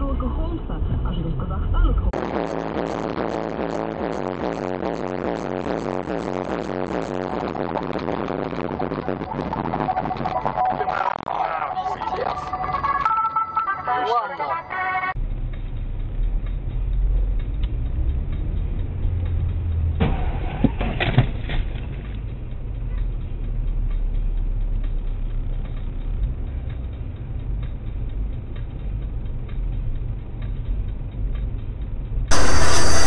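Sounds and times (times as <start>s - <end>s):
car engine and road noise: 0.0s - 4.7s, 15.0s - 33.0s.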